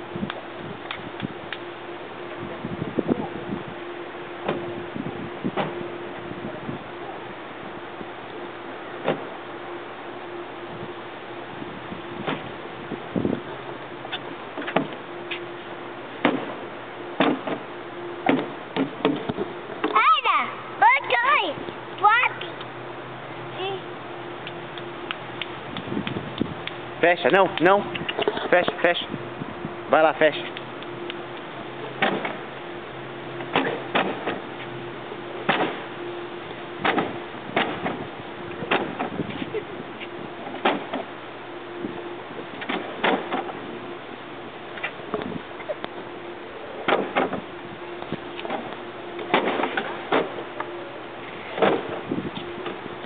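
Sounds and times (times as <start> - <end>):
faint steady hum: 0.0 - 53.0
plastic seats clacking shut: 17.2 - 17.6, 18.2 - 19.5, 32.0 - 32.4, 33.4 - 34.4, 35.5 - 35.8, 36.8 - 38.0, 38.6 - 39.5, 42.6 - 43.6, 46.8 - 47.5, 48.4 - 50.4, 51.5 - 52.8.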